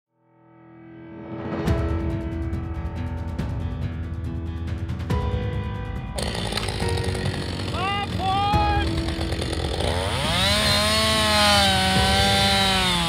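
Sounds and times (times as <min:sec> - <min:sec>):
chainsaw revving and cutting: 0:06.2 - 0:13.0.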